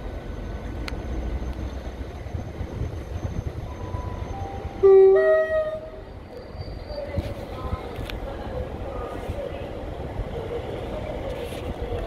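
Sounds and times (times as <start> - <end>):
train rumbling into platform: 0.0 - 12.0
two-tone train horn: 3.8 - 6.0.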